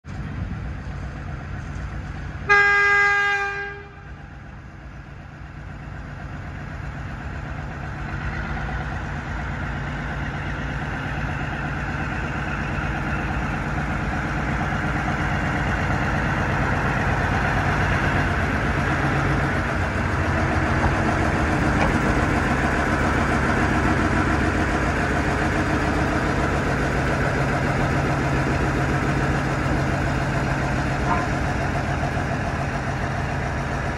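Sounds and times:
diesel engine running: 0.1 - 33.9
locomotive horn blast: 2.5 - 4.2, 31.0 - 31.4.

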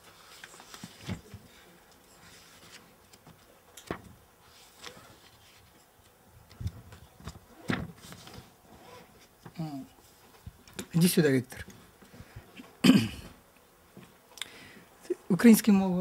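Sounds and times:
book pages turning and rustling: 0.0 - 10.9.

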